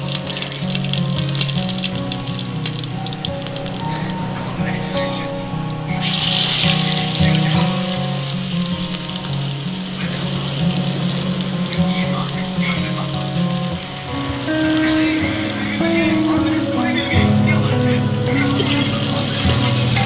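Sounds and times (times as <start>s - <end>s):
background music: 0.0s - 20.0s
onions sizzling in hot oil: 6.0s - 16.0s.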